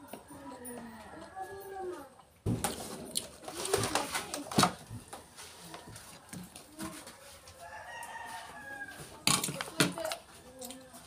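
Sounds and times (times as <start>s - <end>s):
rooster crowing: 7.6s - 9.1s.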